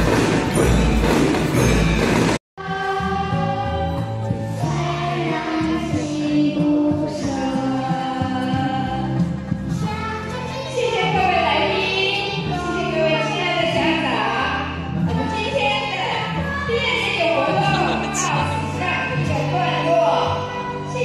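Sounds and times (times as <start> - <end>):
song with sung vocals: 2.6 - 10.7, 14.3 - 21.0.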